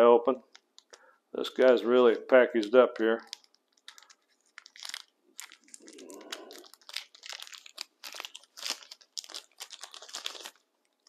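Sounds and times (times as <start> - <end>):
packaging tearing and crinkling: 2.6 - 11.0.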